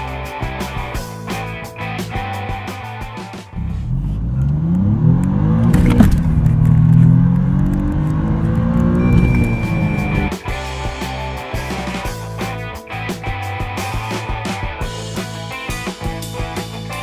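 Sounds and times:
car engine accelerating: 3.5 - 10.3
gear upshift crack: 3.6 - 10.3
steady high beep: 9.0 - 10.3.

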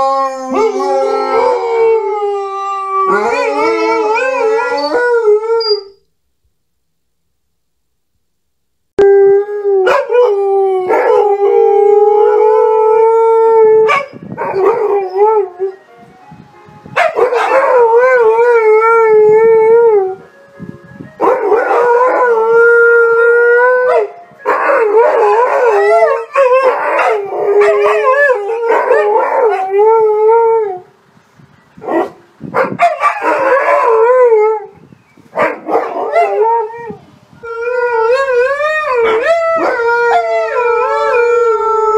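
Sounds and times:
dogs howling: 0.0 - 5.6, 17.0 - 20.1, 21.2 - 30.8, 32.9 - 34.7, 35.6 - 41.9.

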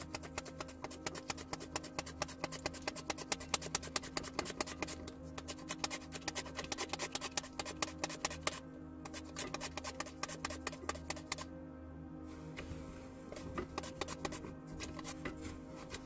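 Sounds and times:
slicer scraping strokes: 0.0 - 11.4, 13.3 - 16.0
steady low hum: 10.8 - 16.0.

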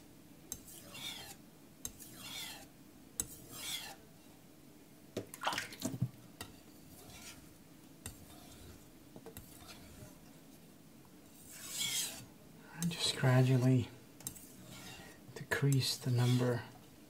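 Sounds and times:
knife blade stroked on whetstone: 0.5 - 4.0, 6.4 - 7.4, 8.0 - 8.8, 9.4 - 10.3, 11.4 - 12.3, 14.2 - 16.6.

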